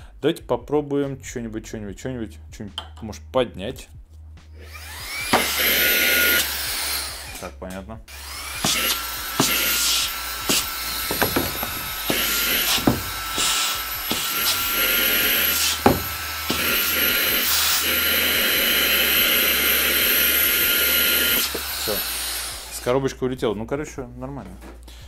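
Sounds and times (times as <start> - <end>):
handheld vacuum whining: 4.6 - 7.5, 8.1 - 23.0
box knocking against nozzle: 10.5 - 13.5, 15.8 - 16.6.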